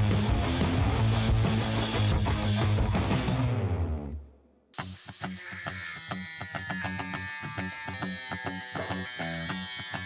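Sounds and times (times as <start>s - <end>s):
angle grinder cutting steel: 4.8s - 10.0s.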